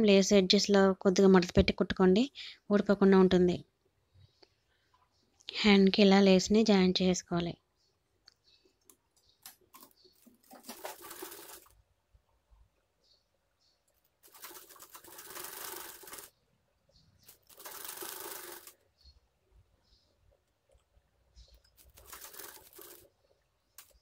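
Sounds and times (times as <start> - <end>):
sewing machine stitching: 10.4 - 11.8, 14.2 - 16.4, 17.2 - 18.8, 21.7 - 23.2.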